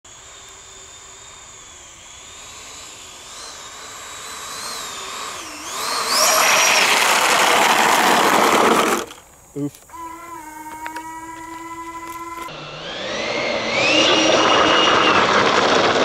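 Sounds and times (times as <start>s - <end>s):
model jet fans whining: 0.0s - 16.0s
model jet skidding along runway: 0.1s - 16.0s.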